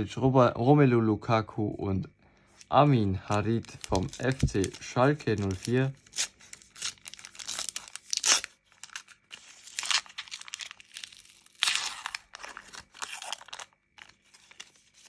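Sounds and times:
foil wrapper tearing and crinkling: 3.3 - 15.0.

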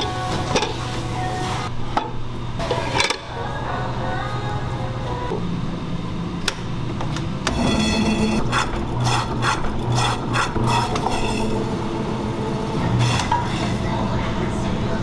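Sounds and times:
blade rasping through meat: 8.3 - 11.5.

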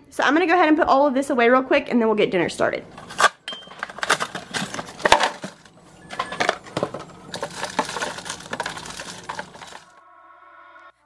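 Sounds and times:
snack boxes knocking into plastic bin: 2.9 - 9.9.

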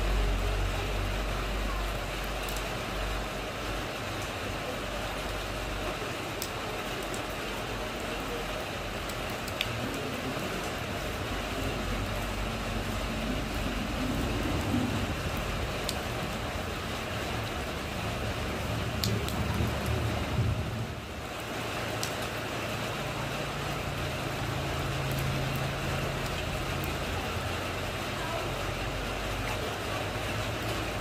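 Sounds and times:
rain falling into puddle: 0.0 - 31.0
drip clicks: 19.0 - 20.0.

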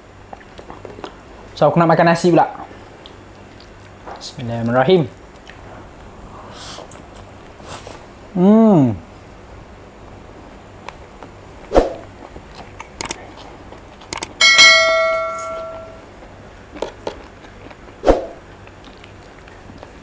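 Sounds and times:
notification bell ding: 14.4 - 16.0.

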